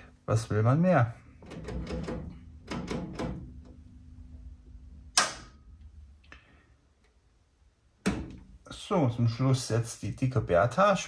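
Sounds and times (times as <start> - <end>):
faint steady hum: 0.0 - 11.0
sharp switch click: 5.1 - 5.6.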